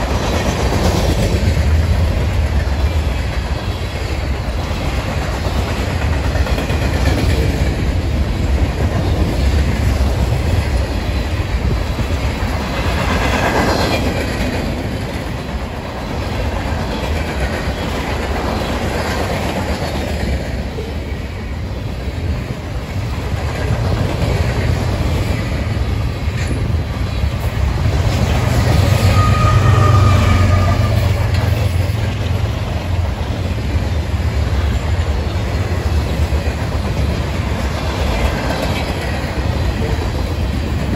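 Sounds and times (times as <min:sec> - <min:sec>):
clickety-clack over rail joints: 0:00.0 - 0:40.9
train wheels rumbling on rails: 0:00.0 - 0:40.9.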